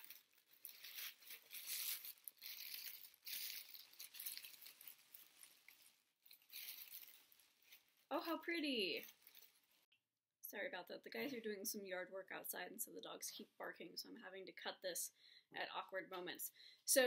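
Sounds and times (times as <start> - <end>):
tissue paper rustling and crinkling: 0.0 - 9.9.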